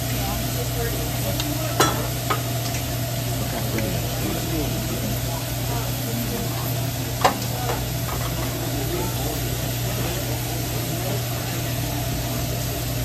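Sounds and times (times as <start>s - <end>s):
chicken sizzling on griddle: 0.0s - 13.0s
spatula clacking on griddle: 1.4s - 2.8s.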